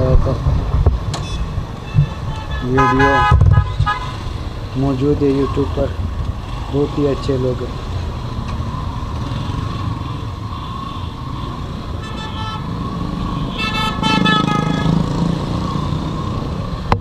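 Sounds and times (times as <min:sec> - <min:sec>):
vehicle horn: 0:01.2 - 0:04.2, 0:12.0 - 0:12.8, 0:13.4 - 0:15.1.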